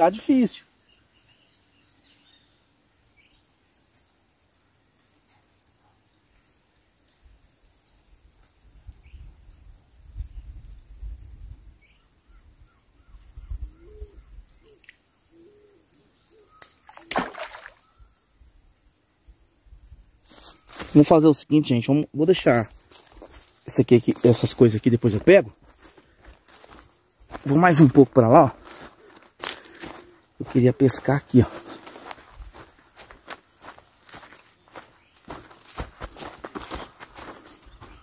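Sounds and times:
insect trilling: 13.0 - 25.5.

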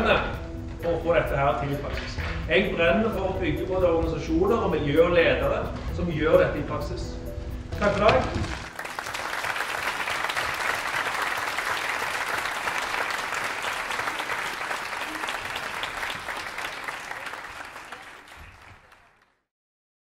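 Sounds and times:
audience applauding: 8.3 - 19.4.

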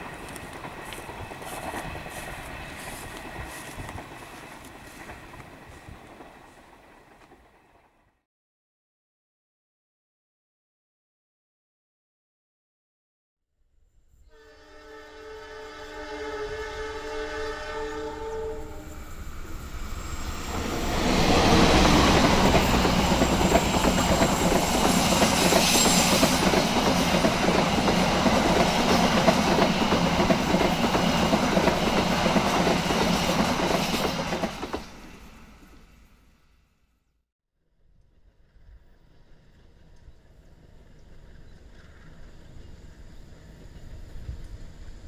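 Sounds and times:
train passing on rails: 0.0 - 8.1, 14.3 - 36.8, 38.1 - 45.0
train horn blast: 14.2 - 19.6.

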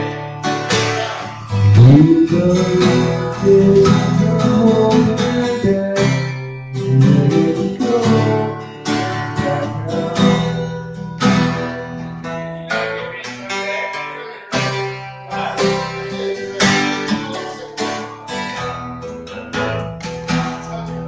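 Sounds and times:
acoustic guitar strumming chords: 0.0 - 21.0.

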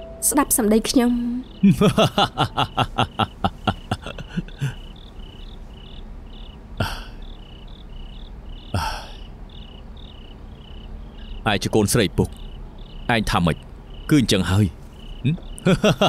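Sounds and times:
crickets chirping: 0.0 - 16.0
breathy bursts: 3.0 - 5.0, 6.8 - 7.5, 8.7 - 9.3
human vocal pulses: 6.8 - 7.2, 8.7 - 9.2.

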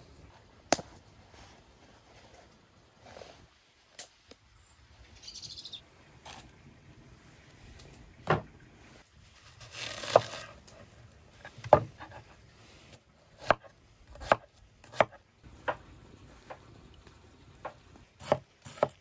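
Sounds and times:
knife cutting onion on wooden board: 9.6 - 10.8, 13.3 - 15.8, 17.7 - 19.0.

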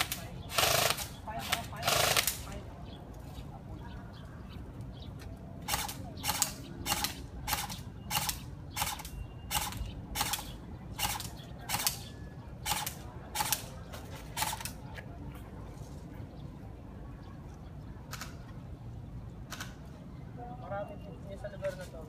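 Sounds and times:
airsoft rifle shots: 0.0 - 2.6, 5.6 - 13.7, 14.4 - 14.8.

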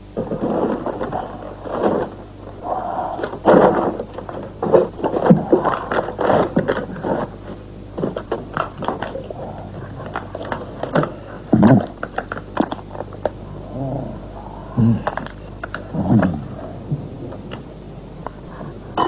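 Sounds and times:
cling wrap crinkling: 0.1 - 13.4.

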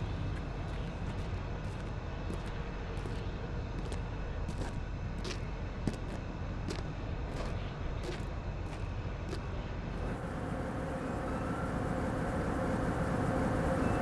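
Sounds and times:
faint steady tones: 9.5 - 14.0.

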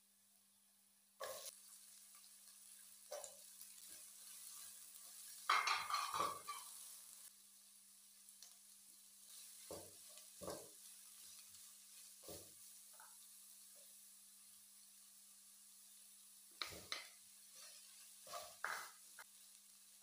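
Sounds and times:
vegetables sizzling in oil: 0.1 - 20.0
spoon scraping pan: 1.2 - 1.6, 2.2 - 7.1, 16.6 - 19.3
vegetables rattling in wok: 2.4 - 7.2.

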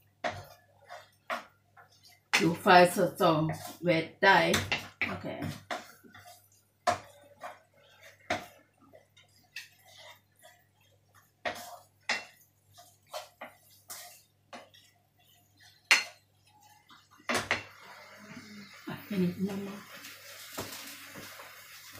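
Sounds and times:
spatula scraping metal pan: 0.2 - 3.8, 4.5 - 18.9.

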